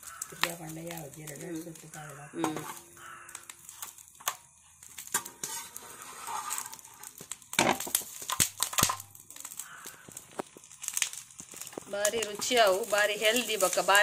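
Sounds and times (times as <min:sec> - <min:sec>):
charred leaves crinkling: 0:00.0 - 0:14.0
spatula scraping on iron griddle: 0:01.4 - 0:04.4, 0:05.0 - 0:09.0, 0:11.7 - 0:14.0.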